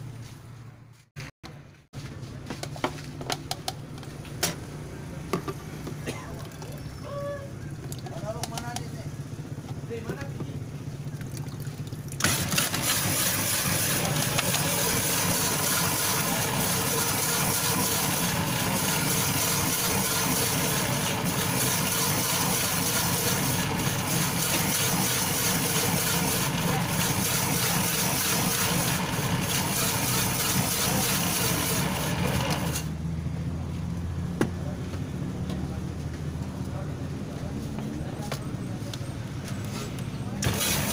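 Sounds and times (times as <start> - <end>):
low motor hum: 5.0 - 40.9
ice-shaving machine grinding ice: 12.1 - 32.9, 40.4 - 40.9.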